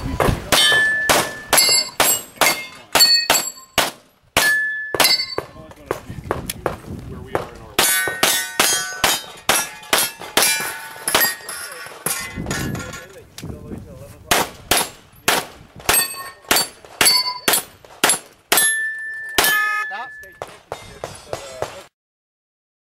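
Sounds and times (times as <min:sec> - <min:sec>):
steel plate targets clanging: 0:00.4 - 0:05.6, 0:07.8 - 0:13.1, 0:15.9 - 0:21.8.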